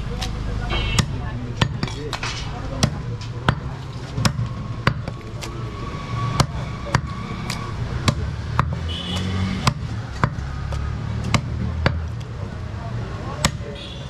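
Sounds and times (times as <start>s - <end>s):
meat cleaver chopping on wood: 2.8s - 5.2s, 6.4s - 12.2s.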